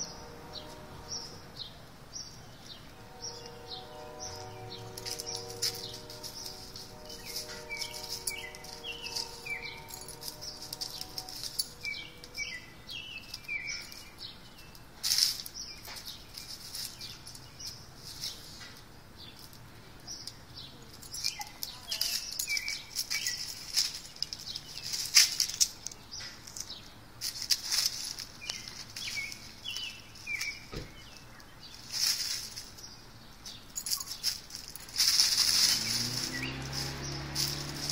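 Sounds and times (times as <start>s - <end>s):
steady hum: 0.0s - 12.8s
dry leaves rustling: 0.0s - 37.9s.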